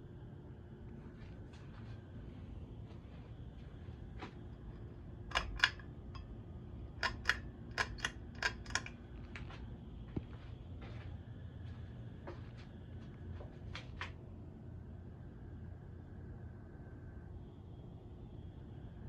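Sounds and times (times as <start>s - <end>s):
ceiling fan whirring: 0.0s - 19.0s
faint hum: 0.0s - 19.0s
pull-chain switch clicking: 5.3s - 6.3s, 7.0s - 9.0s.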